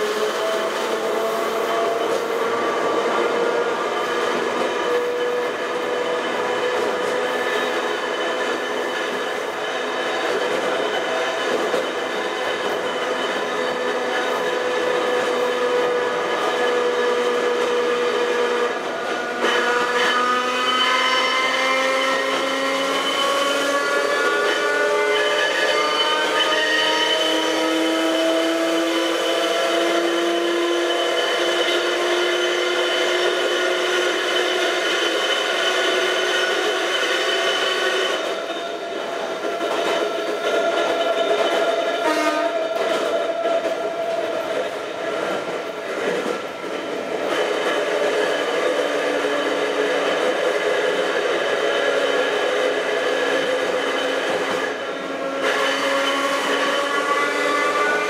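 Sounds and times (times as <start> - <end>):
electric railcar motors whining: 0.0 - 58.0
train running noise: 0.0 - 58.0.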